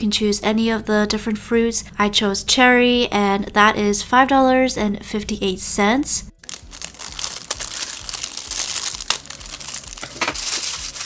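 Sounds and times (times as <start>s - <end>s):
plastic wrapping crinkling: 6.4s - 11.0s.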